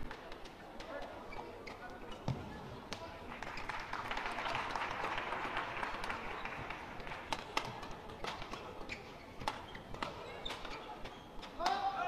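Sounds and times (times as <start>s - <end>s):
feet slapping the court: 0.0s - 4.0s, 5.7s - 12.0s
crowd noise: 0.0s - 12.0s
rackets striking shuttlecock: 7.0s - 12.0s.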